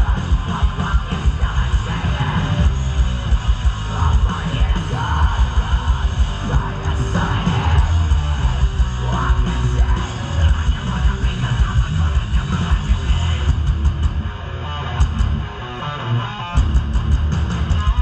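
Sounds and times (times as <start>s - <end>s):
distorted guitars: 0.0s - 18.0s
heavy bass: 0.0s - 18.0s
shouted vocals: 3.9s - 12.1s.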